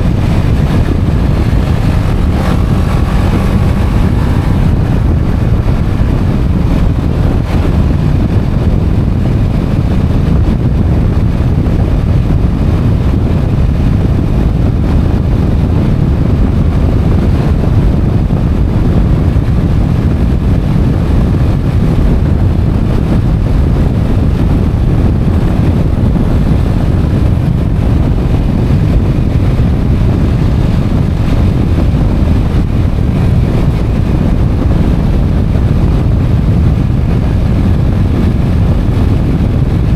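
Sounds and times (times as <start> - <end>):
motorcycle engine: 0.0 - 39.9
road noise: 0.0 - 39.9
wind rumble on microphone: 0.0 - 39.9.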